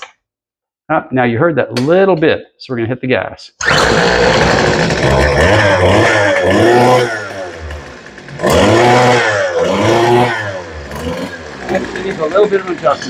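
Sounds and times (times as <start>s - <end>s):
string trimmer engine revving: 3.6s - 13.0s.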